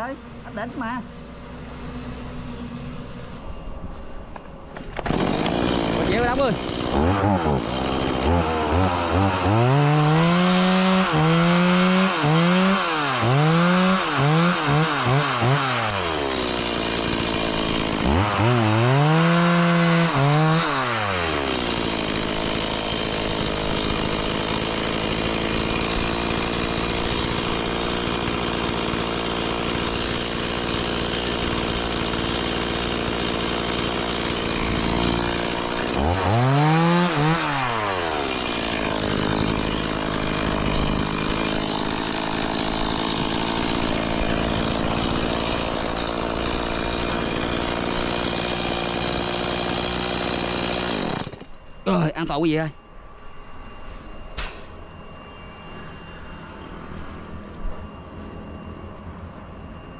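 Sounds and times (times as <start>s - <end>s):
chainsaw revving and idling: 5.0s - 52.4s.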